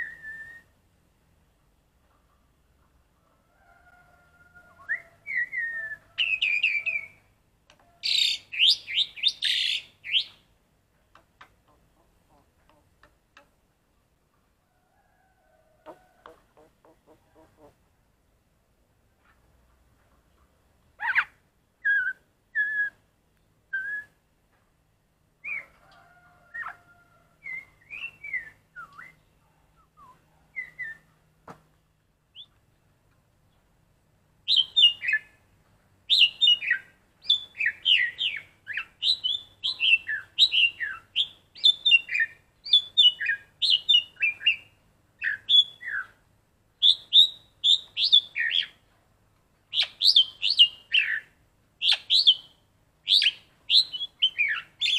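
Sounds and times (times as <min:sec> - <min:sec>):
starling whistling and chirping: 0:08.1 - 0:10.4, 0:36.1 - 0:46.1, 0:46.8 - 0:48.7, 0:49.7 - 0:52.5, 0:53.1 - 0:54.9.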